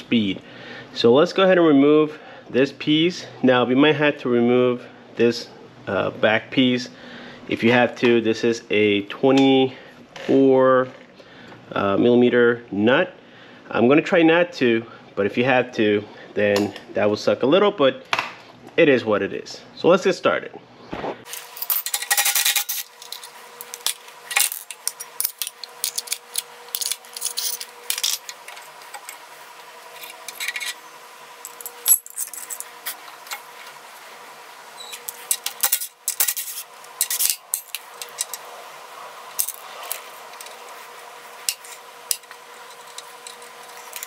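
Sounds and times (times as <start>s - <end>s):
faint steady hum: 0.0s - 44.0s
metal parts clinking: 21.3s - 29.2s, 29.9s - 30.8s, 31.4s - 33.4s, 34.9s - 38.4s, 39.3s - 40.7s, 41.4s - 44.0s.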